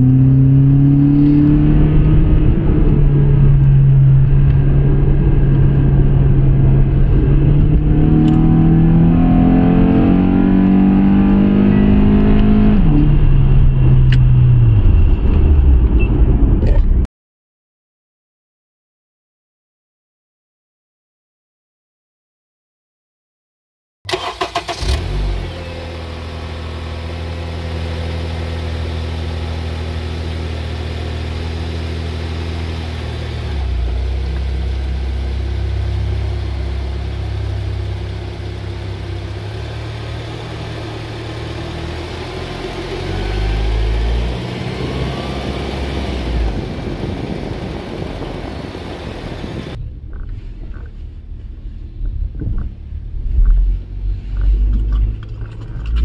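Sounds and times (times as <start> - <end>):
car engine intake idling and revving: 0.0 - 14.9, 24.1 - 56.0.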